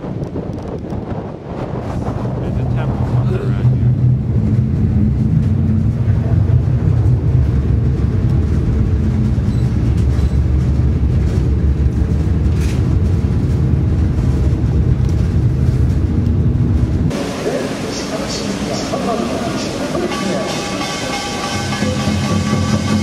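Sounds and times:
low rumble: 0:00.0 - 0:17.9.

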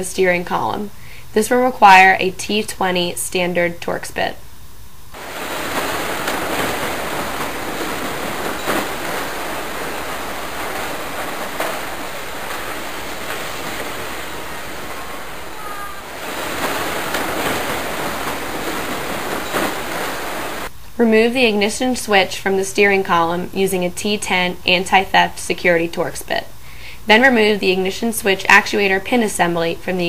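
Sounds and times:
steady rushing noise: 0:05.1 - 0:20.7.

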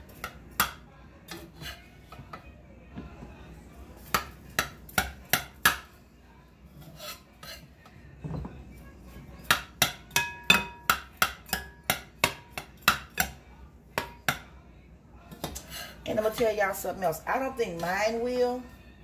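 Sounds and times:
metal spoon clinking in bowl: 0:09.4 - 0:13.4.

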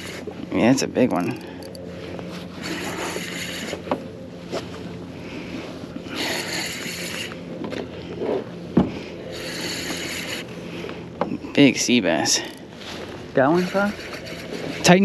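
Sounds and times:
fishing reel whirring: 0:00.0 - 0:00.3, 0:01.1 - 0:03.9, 0:06.1 - 0:07.4, 0:09.2 - 0:11.0, 0:11.7 - 0:12.6, 0:13.4 - 0:15.0.

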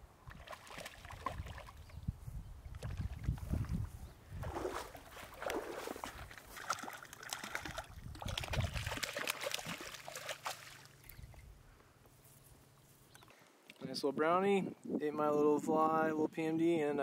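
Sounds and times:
fish splashing in water: 0:00.3 - 0:01.9, 0:04.4 - 0:11.0.

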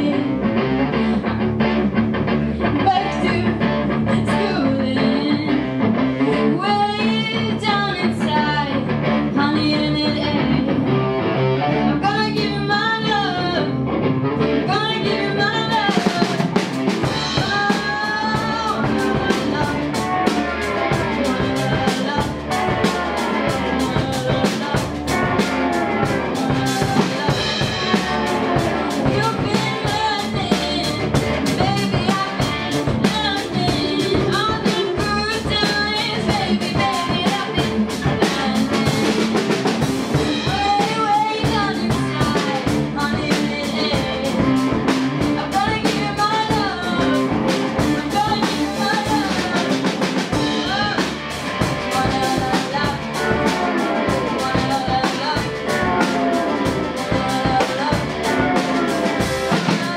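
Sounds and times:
person singing: 0:00.0 - 0:01.6, 0:02.4 - 0:59.9
electric bass: 0:00.0 - 0:59.9
electric guitar: 0:00.0 - 0:59.9
drum kit with cymbals: 0:14.7 - 0:59.9.

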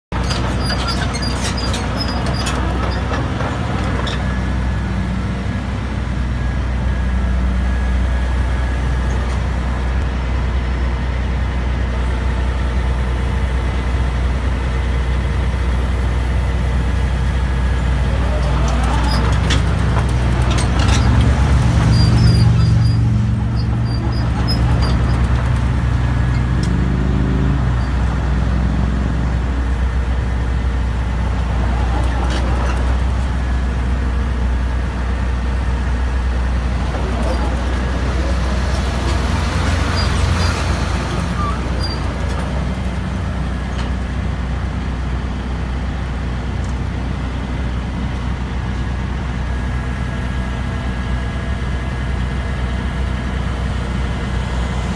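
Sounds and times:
diesel engine droning: 0:00.1 - 0:54.9.

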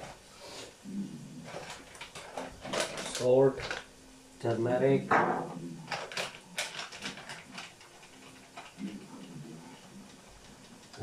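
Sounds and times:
plastic packet crinkling: 0:01.5 - 0:03.9, 0:05.9 - 0:09.0.

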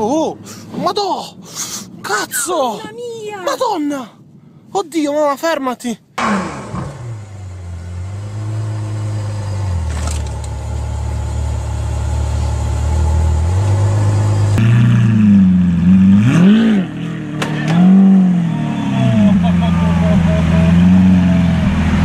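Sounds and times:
car engine revving: 0:06.2 - 0:22.0
car engine idling: 0:17.1 - 0:22.0.

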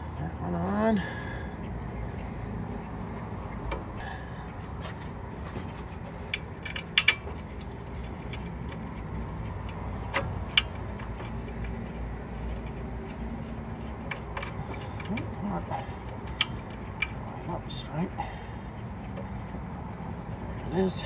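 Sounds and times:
steady low rumble: 0:00.0 - 0:21.0
sharp metal clicks: 0:06.2 - 0:15.4, 0:16.0 - 0:17.3.

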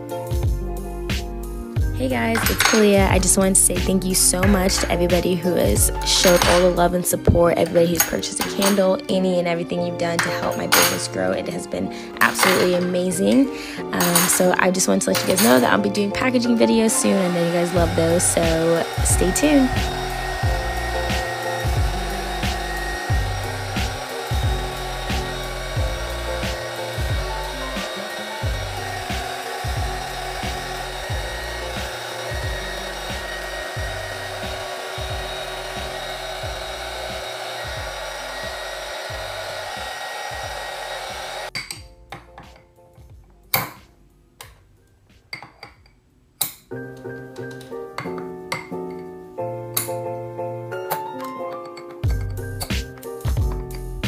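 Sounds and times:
heat gun blowing: 0:16.8 - 0:41.5.

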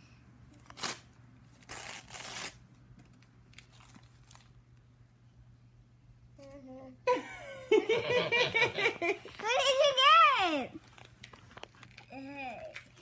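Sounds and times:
wrapping paper tearing: 0:00.6 - 0:02.6.

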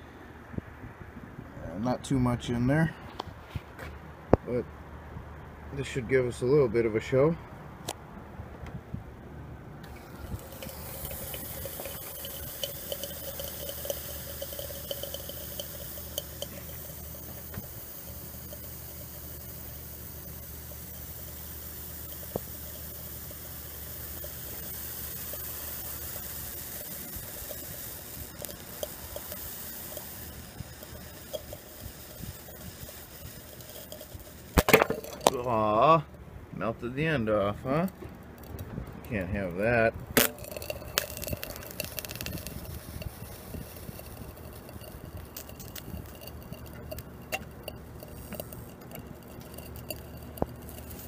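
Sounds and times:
hissing with pops and crackles: 0:09.8 - 0:36.2, 0:36.8 - 0:51.0
transformer humming: 0:09.8 - 0:51.0.

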